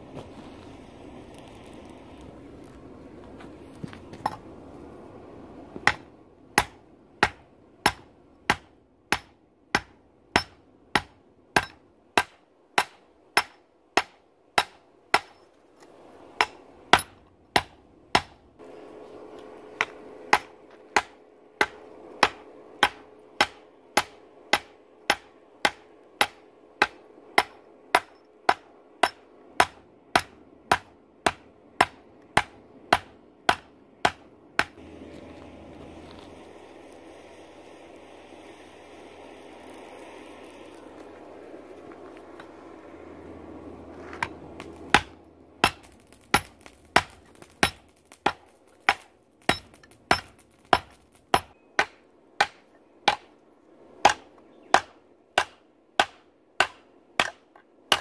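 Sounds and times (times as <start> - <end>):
hammer striking steel on anvil: 5.8 - 15.4, 16.4 - 18.4, 19.8 - 34.8, 44.2 - 53.3, 54.0 - 58.0.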